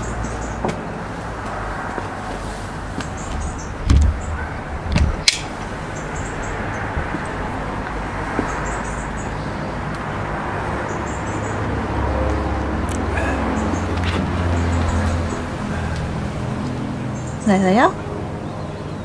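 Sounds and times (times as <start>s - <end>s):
steady low rumble: 2.4s - 10.8s, 11.6s - 17.4s
low thumps: 3.0s - 8.6s.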